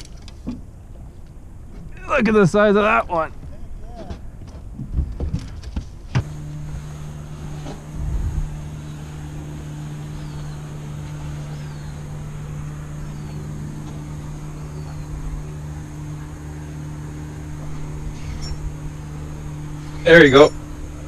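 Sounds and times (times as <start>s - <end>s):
outboard motor idling: 6.2s - 21.0s
bird chirps: 9.8s - 15.2s.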